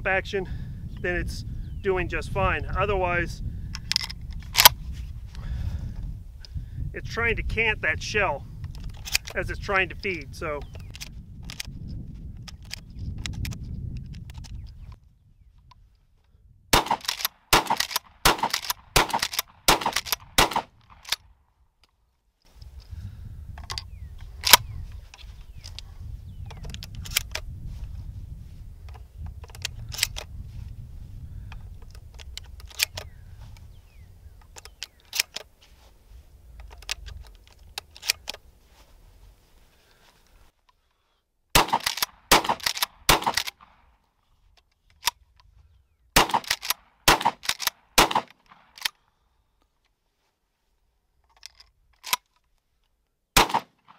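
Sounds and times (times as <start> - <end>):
wind rumble on microphone: 0.0 - 17.0, 22.5 - 34.9
shells clicking into shotgun: 3.7 - 4.8, 8.6 - 9.5, 16.8 - 22.0, 28.9 - 30.3, 31.8 - 33.1, 34.4 - 35.5, 36.6 - 38.4, 41.6 - 43.8, 46.2 - 49.0, 51.2 - 52.6
loud sharp cracks: 16.8 - 21.2, 41.6 - 43.8, 46.2 - 49.0, 53.4 - 53.9.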